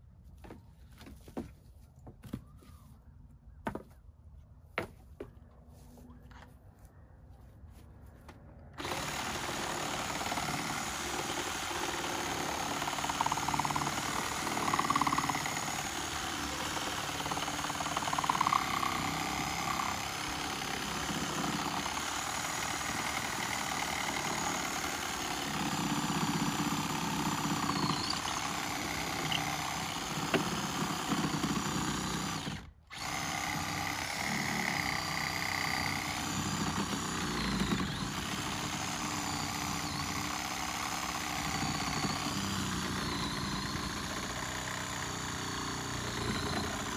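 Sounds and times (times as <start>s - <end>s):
reciprocating saw cutting wood: 8.8s - 46.9s.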